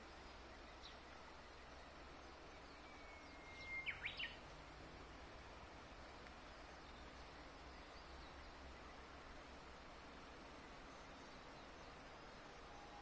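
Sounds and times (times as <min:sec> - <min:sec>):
faint background hiss: 0:00.0 - 0:13.0
bird singing whistled song: 0:00.4 - 0:04.4.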